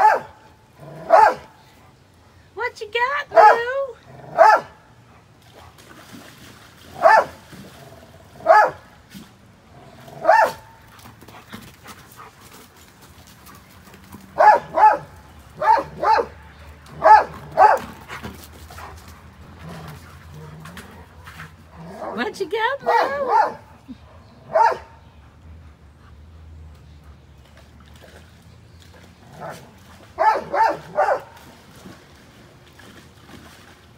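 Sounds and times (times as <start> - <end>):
dog barking: 0.0 - 0.3, 1.1 - 1.5, 3.3 - 3.7, 4.4 - 4.8, 7.0 - 7.4, 8.4 - 8.8, 10.2 - 10.7, 14.4 - 16.4, 17.0 - 17.8, 22.8 - 25.0, 30.2 - 31.3.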